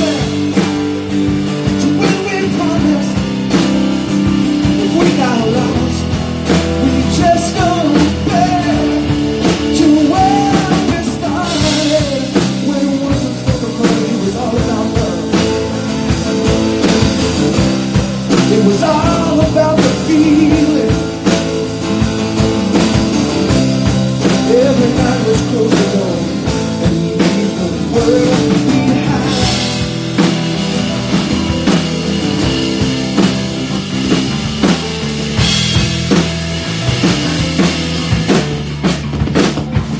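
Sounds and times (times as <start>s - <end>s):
man singing: 0.0s - 30.3s
acoustic guitar: 0.0s - 39.9s
bass: 0.0s - 39.9s
drum kit: 0.0s - 39.9s
piano: 0.0s - 39.9s.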